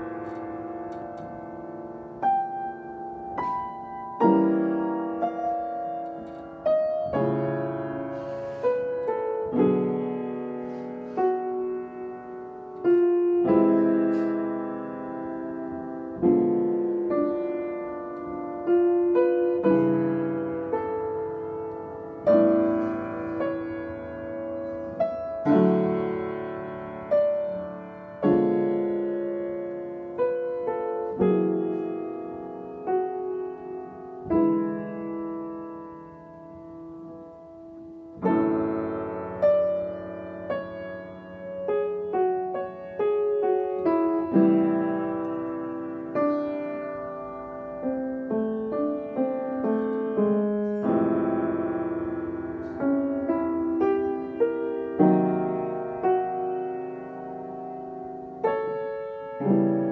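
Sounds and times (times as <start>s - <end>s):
piano chords ringing: 0.0s - 59.9s
single piano notes: 0.0s - 59.9s.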